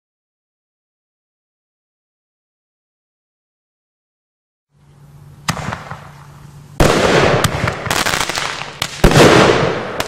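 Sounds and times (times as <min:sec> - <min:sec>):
firework launch: 0:05.4 - 0:10.0
dense crackling of firework stars: 0:05.5 - 0:10.0.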